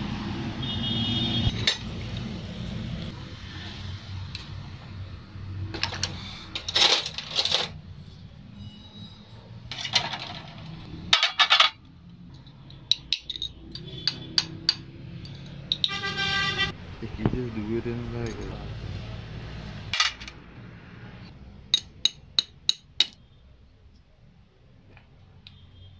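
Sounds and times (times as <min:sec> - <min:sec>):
metal parts clinking on workbench: 0:05.8 - 0:07.8, 0:09.7 - 0:16.0, 0:18.2 - 0:18.6, 0:20.0 - 0:20.4.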